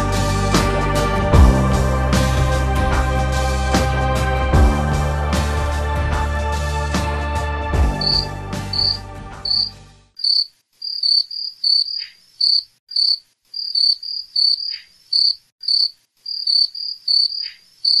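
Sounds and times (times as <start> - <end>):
background music: 0.0 - 10.1
crickets chirping: 8.0 - 18.0.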